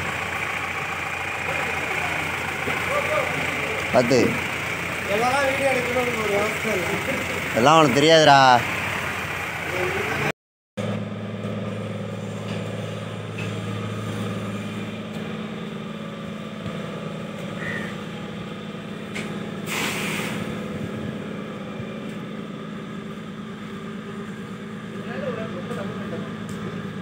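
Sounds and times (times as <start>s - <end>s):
engine humming: 0.0s - 27.0s.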